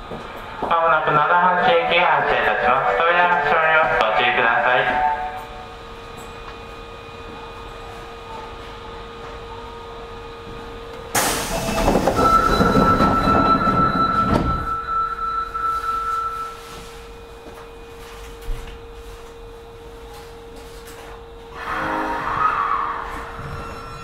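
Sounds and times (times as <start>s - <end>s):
steady high tone: 0.8s - 6.5s, 11.6s - 18.2s, 21.5s - 24.0s
sliding doors closing rush: 11.2s - 14.9s.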